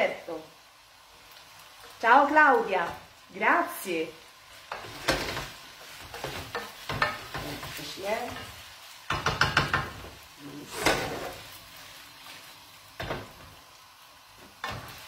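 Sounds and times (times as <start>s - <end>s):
faint sizzle: 0.0s - 15.0s
pasta stirred in a frying pan: 0.0s - 15.0s
utensil knocking against pan: 9.1s - 10.0s.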